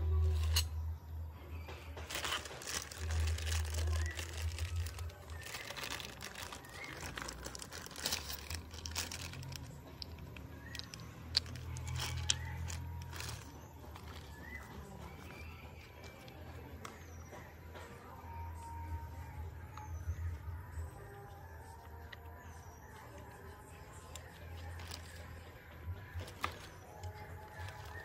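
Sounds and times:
plastic bags crinkling: 0.1 - 0.7, 2.0 - 15.4, 24.1 - 25.4, 26.2 - 28.0.

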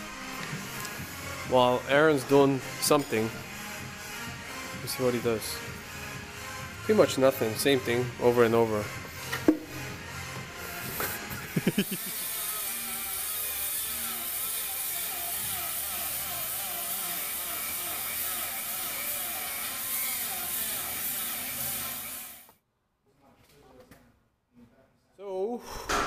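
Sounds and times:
power grinder on metal: 11.6 - 22.5.

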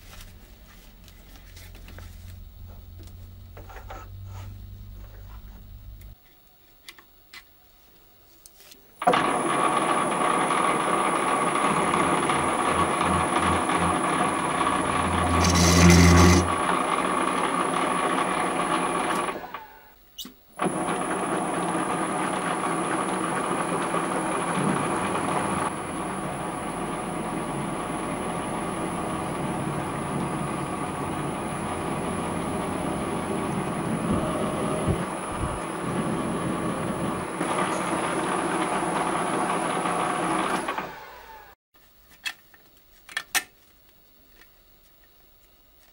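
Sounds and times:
lathe hum with high whine: 9.0 - 20.0, 20.6 - 41.6.

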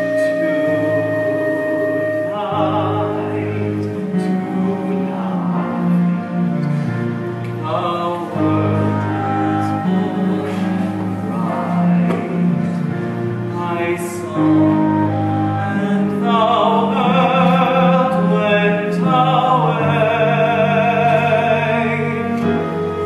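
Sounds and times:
person singing: 0.0 - 23.0
slow orchestral music: 0.0 - 23.0.

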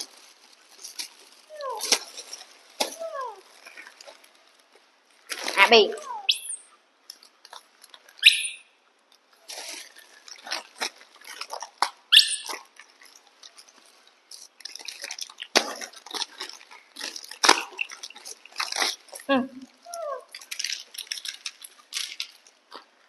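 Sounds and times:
plastic wrappers crinkling: 0.0 - 6.2, 7.0 - 8.3, 9.0 - 23.0
baby macaques squeaking: 6.0 - 6.6, 8.2 - 8.7, 12.1 - 12.6, 19.8 - 20.4.

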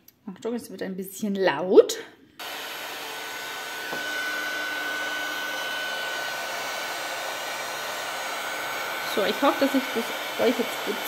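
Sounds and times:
heat tool blowing air: 2.4 - 11.0.

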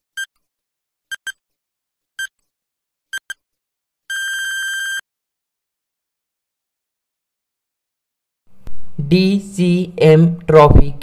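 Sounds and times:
long steady beep: 4.1 - 5.0.

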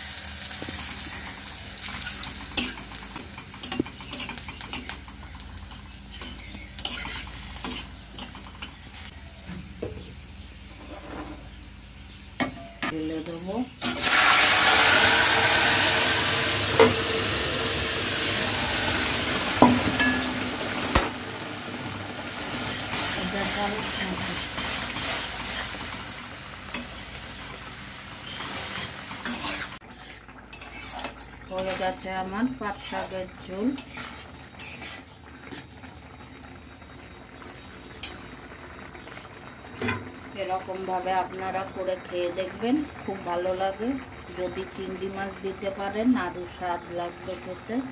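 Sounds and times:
hot oil sizzling in a wok: 0.0 - 47.9
utensils clinking against wok: 1.9 - 9.1, 12.4 - 13.0, 19.6 - 21.2, 28.2 - 29.8
soup boiling: 14.0 - 46.6
scrape: 28.2 - 31.9, 33.8 - 35.6.

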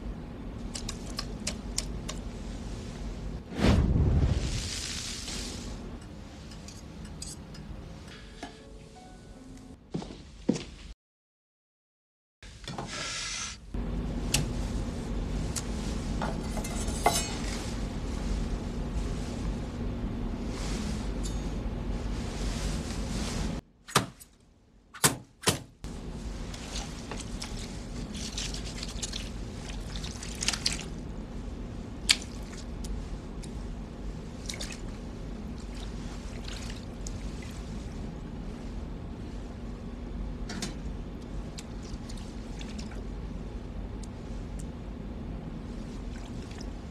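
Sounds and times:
steady low hum: 0.0 - 10.9, 13.6 - 23.6, 25.8 - 46.9
sizzling hiss: 4.2 - 5.8
wet squelching of fish: 26.5 - 31.0, 35.6 - 37.7.

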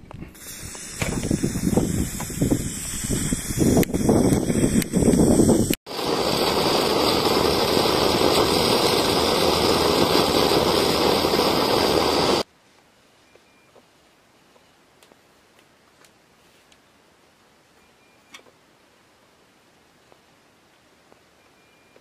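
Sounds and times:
uneven hissing: 0.2 - 12.5
flame roaring: 0.4 - 12.5.

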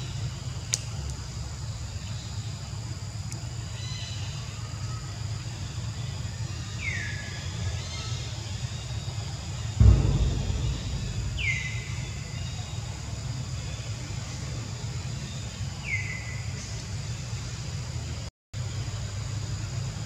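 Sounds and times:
low thump: 9.8 - 12.6
steady low rumble: 9.8 - 12.7.

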